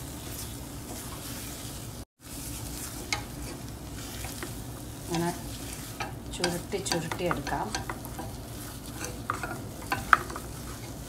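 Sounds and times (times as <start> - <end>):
filling sizzling softly: 0.0 - 6.4
wooden spatula scraping a pan: 0.0 - 11.0.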